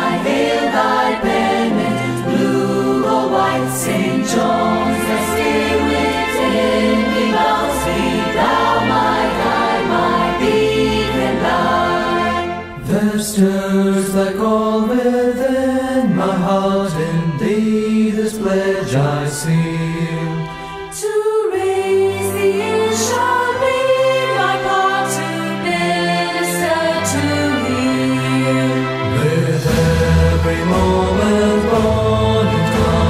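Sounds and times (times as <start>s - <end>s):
choir singing a hymn: 0.0s - 33.0s
low accompaniment: 26.9s - 33.0s.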